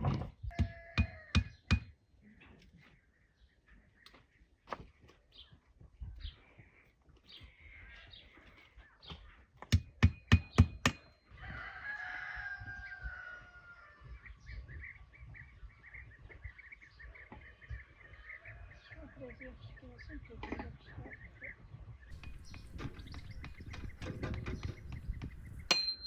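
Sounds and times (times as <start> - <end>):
sharp knocks: 0.0 - 1.9, 22.1 - 26.0
rooster crowing: 0.5 - 1.4, 11.3 - 14.1
rapid chirping: 22.1 - 25.9.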